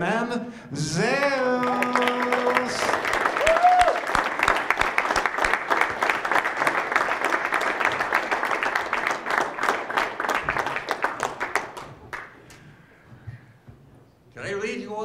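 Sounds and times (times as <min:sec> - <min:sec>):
audience applause: 0:01.2 - 0:12.6.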